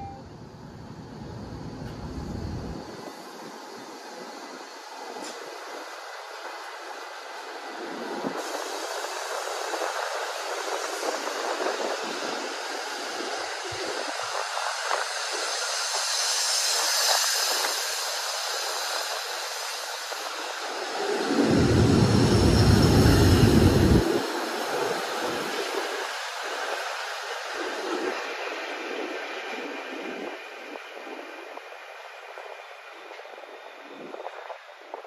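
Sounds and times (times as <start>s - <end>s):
electric train running: 1.6s - 34.9s
loud low rumble: 21.2s - 24.2s.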